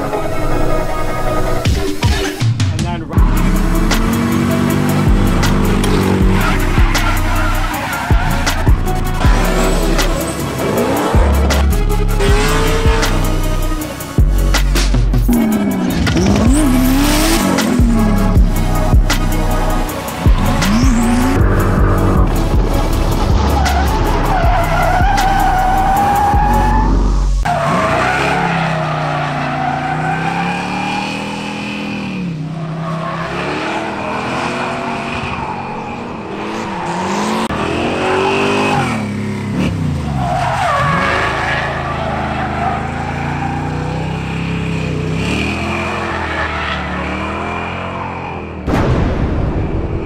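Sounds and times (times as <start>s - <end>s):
car engine revving: 3.0s - 48.7s
tires squealing: 3.0s - 48.7s.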